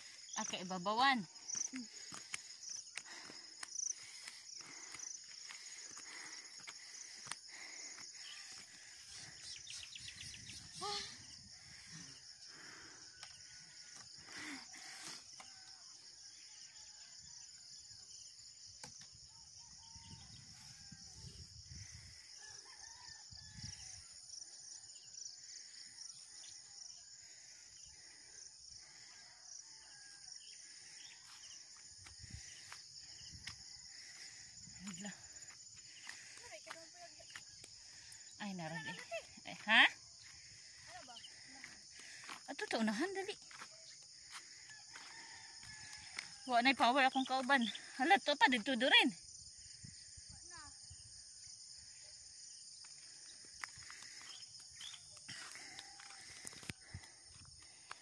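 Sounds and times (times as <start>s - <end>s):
high-pitched insect hum: 0.0s - 58.0s
faint roosters crowing: 22.3s - 24.9s, 44.2s - 46.5s, 55.3s - 57.2s.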